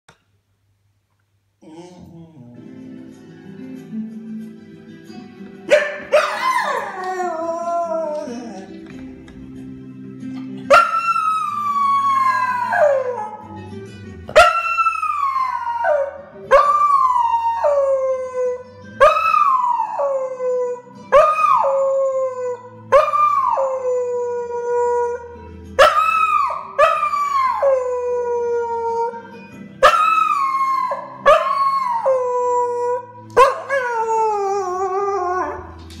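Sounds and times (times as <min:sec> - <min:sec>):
music: 0:01.6 - 0:36.0
dog howling: 0:06.1 - 0:08.8, 0:10.8 - 0:13.5, 0:29.8 - 0:35.8.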